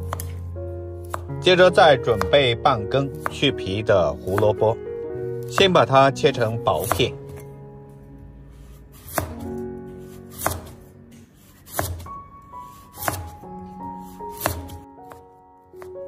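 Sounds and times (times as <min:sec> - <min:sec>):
knife chopping carrot on board: 0:00.0 - 0:00.4, 0:01.0 - 0:04.8, 0:05.4 - 0:06.0, 0:06.7 - 0:07.3, 0:08.9 - 0:16.0.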